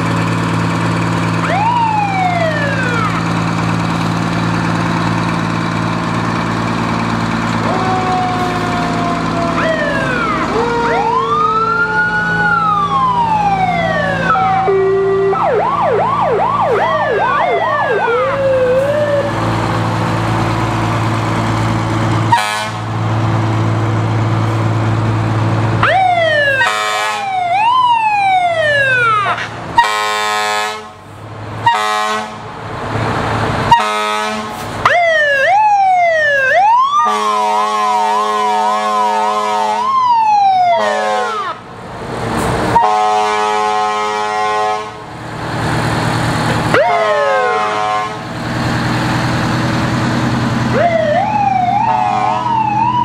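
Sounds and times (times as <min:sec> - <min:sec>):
truck engines running: 0:00.0 - 0:53.0
wailing sirens: 0:01.2 - 0:04.1, 0:07.2 - 0:22.9, 0:25.8 - 0:30.9, 0:33.6 - 0:41.8, 0:42.6 - 0:53.0
fast yelping siren: 0:01.4 - 0:03.2, 0:07.6 - 0:19.3, 0:35.0 - 0:41.6, 0:46.7 - 0:47.8, 0:50.7 - 0:53.0
horn blasts: 0:22.3 - 0:22.9, 0:26.6 - 0:27.3, 0:29.3 - 0:31.0, 0:31.6 - 0:32.4, 0:33.7 - 0:34.6, 0:37.0 - 0:39.9, 0:42.8 - 0:45.0, 0:47.0 - 0:48.3, 0:51.8 - 0:52.6.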